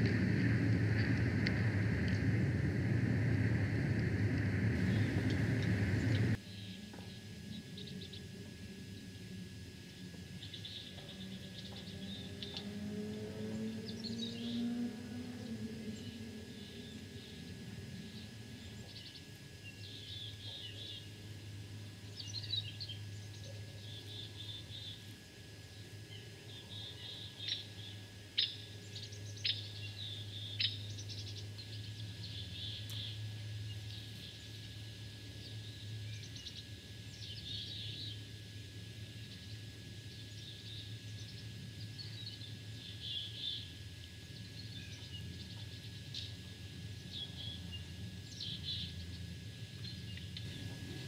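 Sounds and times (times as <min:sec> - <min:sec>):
steady low hum: 0:00.0 - 0:51.0
small birds chirping: 0:10.4 - 0:12.7, 0:15.8 - 0:38.3, 0:39.2 - 0:51.0.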